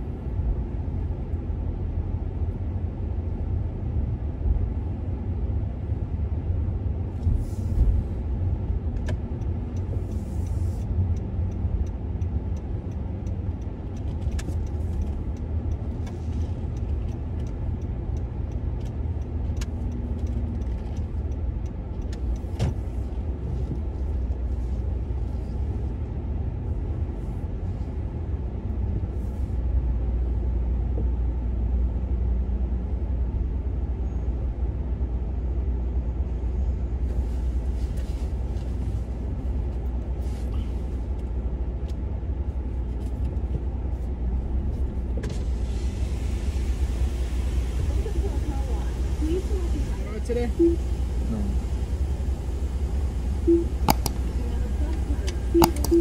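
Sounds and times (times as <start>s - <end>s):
car engine and tyres rumbling: 0.0s - 56.0s
faint clicks and knocks: 53.5s - 56.0s.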